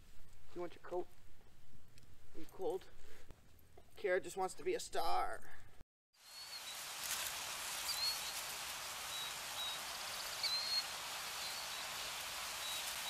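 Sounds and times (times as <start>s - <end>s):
high bird chirps: 6.2s - 6.8s, 7.8s - 8.5s, 9.1s - 13.0s
hissing nature ambience: 6.2s - 13.0s.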